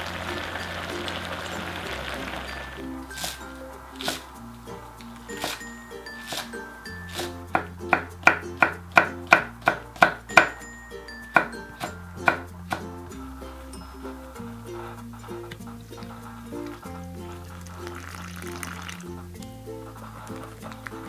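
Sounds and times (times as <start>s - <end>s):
light background music: 0.0s - 21.0s
knife chopping on wooden board: 7.1s - 10.6s, 11.3s - 12.9s.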